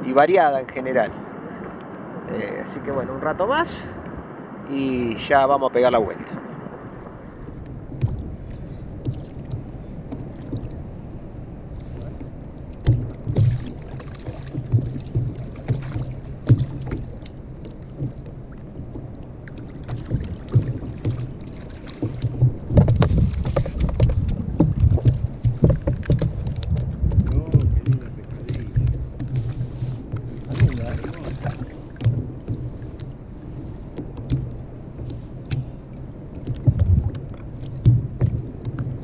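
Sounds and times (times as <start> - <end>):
water splashing: 4.8 - 39.0
knocks against kayak: 7.9 - 10.8, 11.9 - 19.1, 19.9 - 33.1, 33.9 - 35.7, 36.4 - 39.0.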